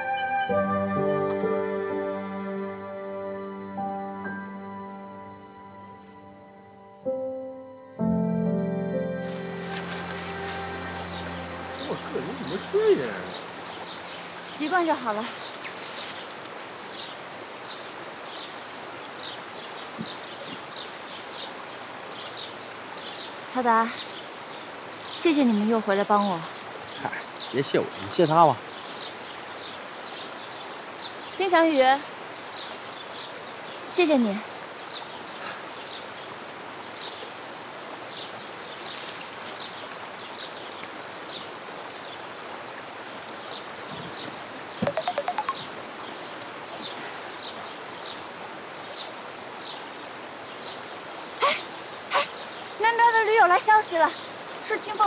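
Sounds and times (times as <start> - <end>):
river flowing: 8.0 - 55.0
steady hiss: 9.0 - 44.8
small birds chirping: 9.3 - 37.4, 38.0 - 55.0.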